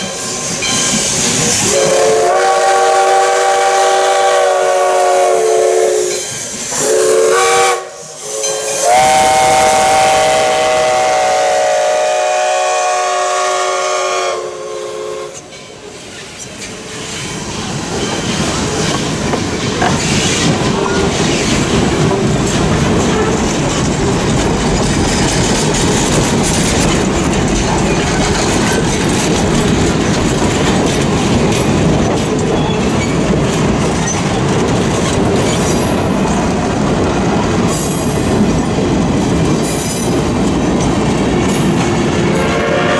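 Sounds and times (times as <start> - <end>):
steam locomotive chime whistle: 0.0 - 15.8, 42.3 - 42.9
train coaches rumbling past: 0.0 - 42.9
wheels clicking over rail joints: 15.4 - 42.4.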